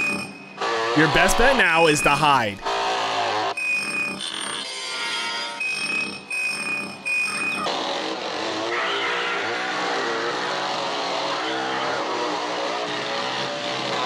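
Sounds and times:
steady high tone: 1.0 - 2.6
chainsaw running and revving: 9.4 - 14.0.

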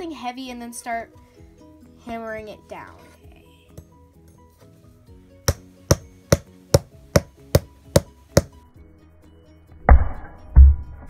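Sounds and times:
quiet background music: 0.0 - 11.0
hammer tapping knife spine: 5.5 - 8.5.

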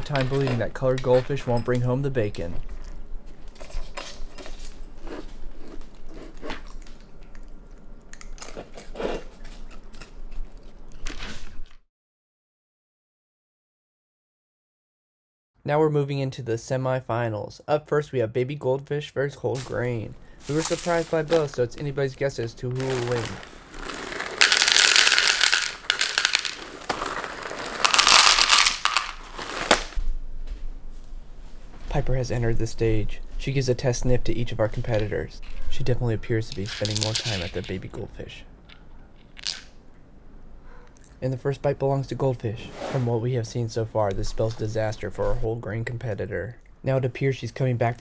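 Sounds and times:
crackers rattling into plastic bowl: 0.0 - 1.3, 20.5 - 21.8, 22.7 - 30.0, 36.4 - 37.8, 39.3 - 39.7
animal chewing crunchy crackers: 2.7 - 11.8
snack bag crinkling: 3.4 - 11.8, 20.4 - 21.8, 22.7 - 30.0, 36.5 - 37.8.

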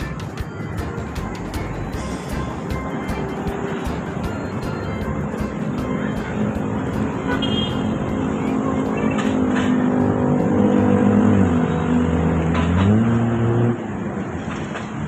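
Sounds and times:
engine accelerating: 0.0 - 14.4
traffic noise: 0.0 - 15.0.

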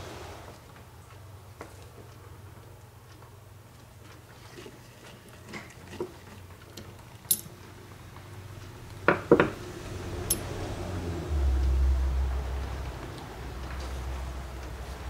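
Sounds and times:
low rumble: 9.6 - 14.2.

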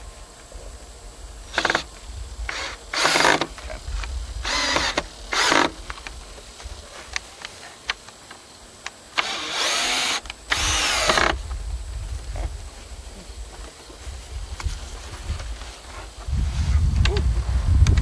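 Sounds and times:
cordless drill boring into wood: 1.5 - 1.9, 2.5 - 3.6, 4.4 - 5.8, 9.2 - 11.4.

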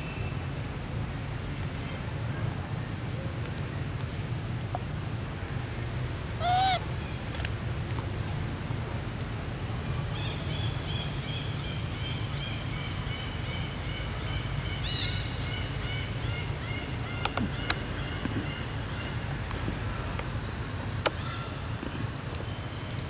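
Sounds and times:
clear arched animal call: 6.4 - 6.9.

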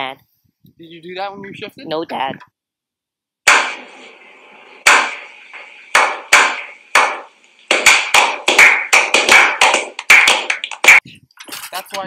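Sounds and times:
slow hand claps: 6.0 - 11.0.

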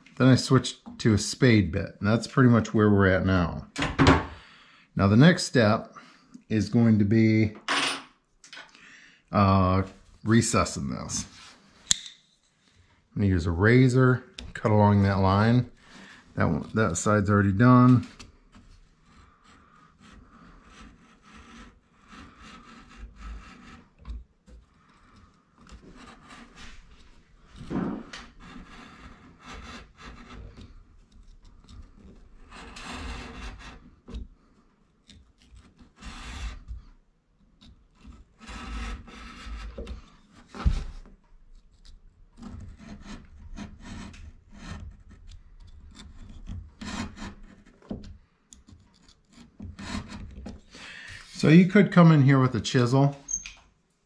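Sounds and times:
sharp click: 11.9 - 12.2
utility knife scraping board: 13.4 - 51.6.

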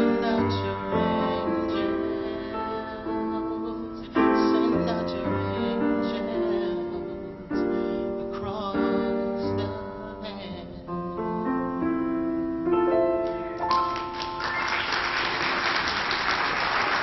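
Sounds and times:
man singing with vibrato: 0.0 - 12.1
piano: 0.0 - 17.0
audience applause: 13.7 - 17.0.

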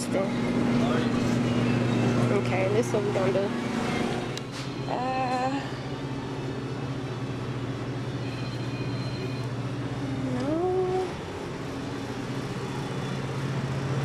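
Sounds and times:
shop background hum: 0.0 - 14.0
person's questioning hm: 10.2 - 11.2.

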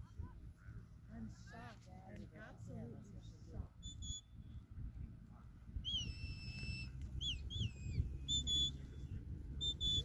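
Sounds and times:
handler's whistle: 3.8 - 4.3, 5.8 - 8.8, 9.6 - 10.0.

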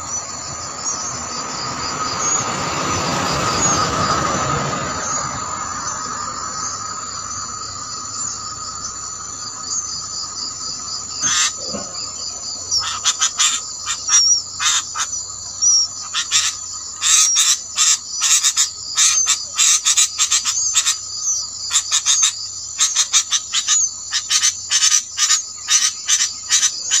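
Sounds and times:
high-pitched insect chorus: 0.0 - 27.0.

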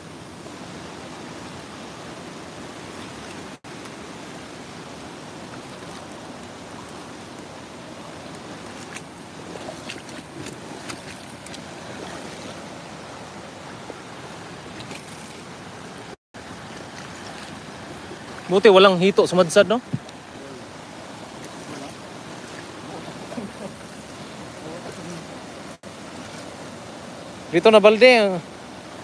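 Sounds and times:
flowing river water rushing: 0.0 - 29.0.

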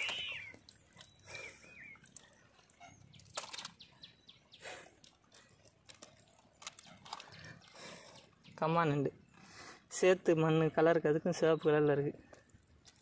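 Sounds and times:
faint bird chirps: 0.0 - 5.0.

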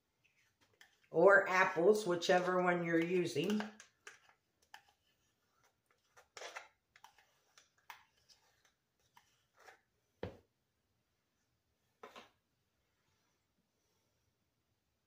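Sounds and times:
spoon scraping a cup: 3.1 - 9.8.

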